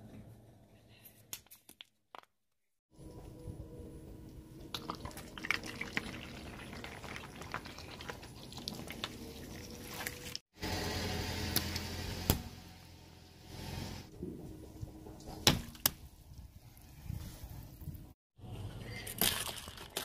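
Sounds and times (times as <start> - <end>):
tyre squashing water beads: 19.1 - 20.0.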